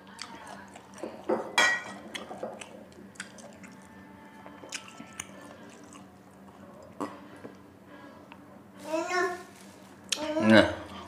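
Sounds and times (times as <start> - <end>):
man chewing food: 0.0 - 7.6.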